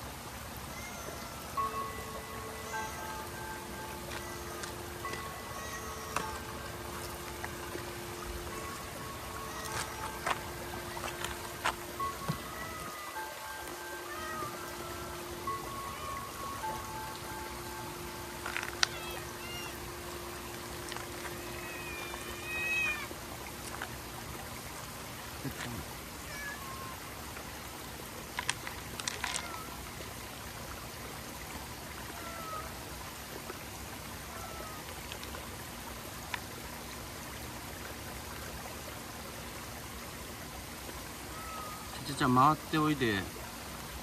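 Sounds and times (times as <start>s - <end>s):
water trickling: 0.0s - 44.0s
cats meowing: 0.7s - 1.7s, 4.0s - 6.6s, 8.4s - 11.4s, 12.0s - 17.1s, 18.5s - 19.8s, 21.2s - 23.1s, 26.2s - 27.0s, 29.1s - 29.8s, 32.1s - 32.7s, 41.3s - 42.0s.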